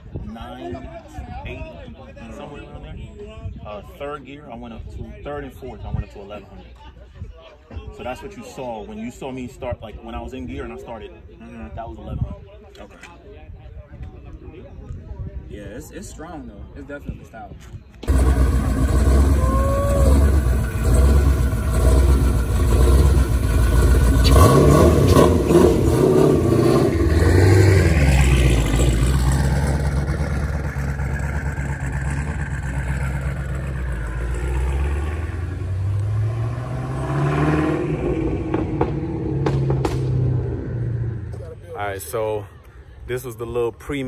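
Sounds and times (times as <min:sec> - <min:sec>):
car engine revving: 0:18.0 - 0:41.5.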